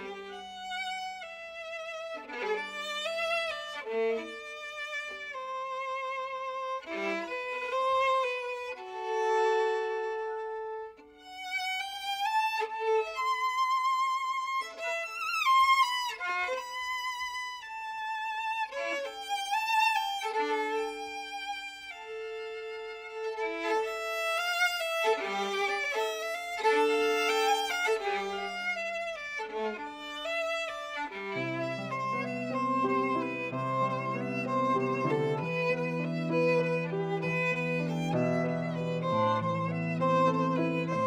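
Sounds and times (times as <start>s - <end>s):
piano accompaniment: 0.0s - 1.4s, 22.1s - 41.0s
bowed string melody with vibrato: 0.0s - 41.0s.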